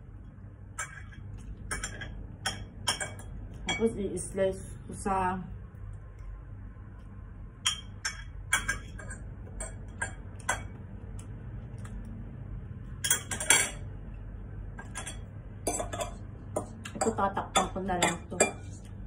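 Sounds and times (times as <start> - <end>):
fork clinking on ceramic plates: 7.6 - 10.7, 14.8 - 18.8.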